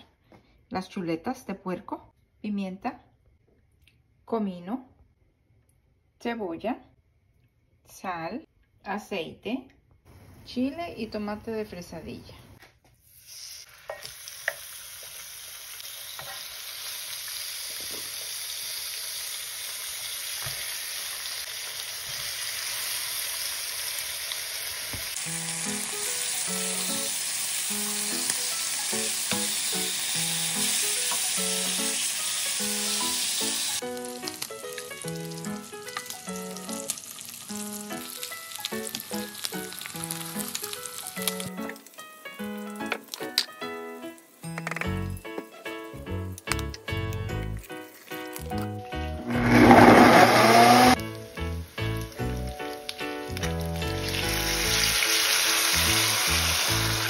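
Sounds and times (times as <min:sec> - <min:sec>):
pork chops sizzling in skillet: 0:13.0 - 0:44.5, 0:49.0 - 0:57.0
light background melody: 0:25.2 - 0:57.0.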